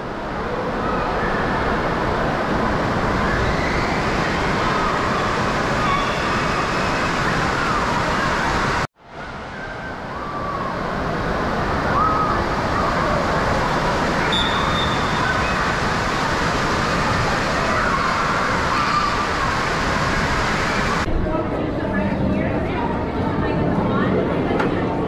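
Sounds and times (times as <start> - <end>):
crowd noise in a large hall: 0.0 - 25.0
children shrieking and calling: 16.8 - 19.9.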